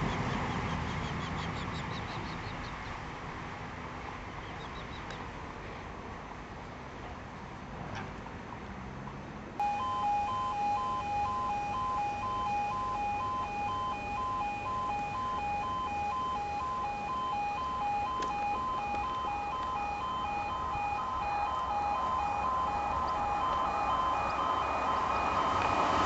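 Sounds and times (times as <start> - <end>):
two-tone crossing alarm: 9.6 - 26.0.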